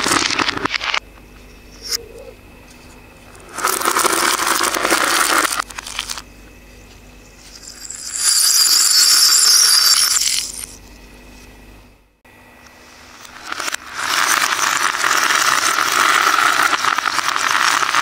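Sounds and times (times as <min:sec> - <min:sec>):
small metal bells tinkling: 0:07.5 - 0:10.8
small bottles clattering: 0:07.6 - 0:10.7.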